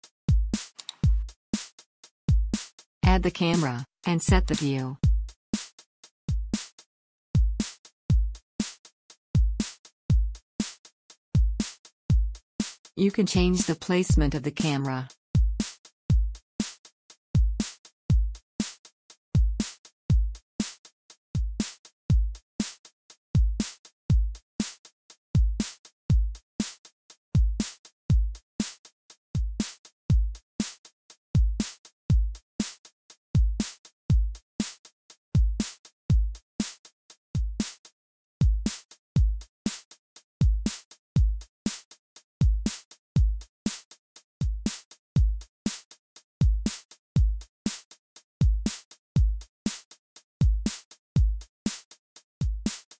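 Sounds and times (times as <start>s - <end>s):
electronic music with drum-machine beat: 0.4s - 1.4s, 2.5s - 5.3s.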